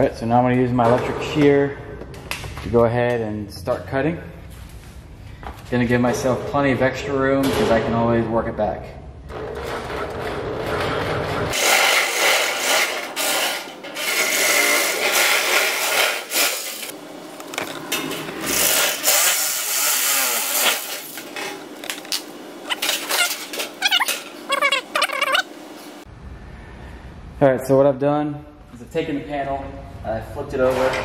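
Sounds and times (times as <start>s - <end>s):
electric shear cutting steel sheet: 9.4s - 17.0s, 18.4s - 25.0s
metal sheet warbling wobble: 22.7s - 25.5s.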